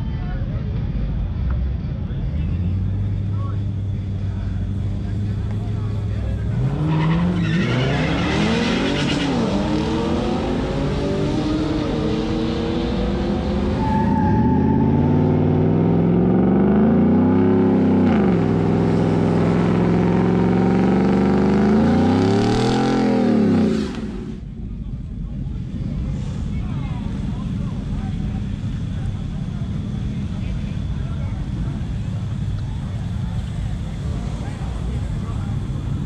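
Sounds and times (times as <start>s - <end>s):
truck engine revving: 2.6s - 24.5s.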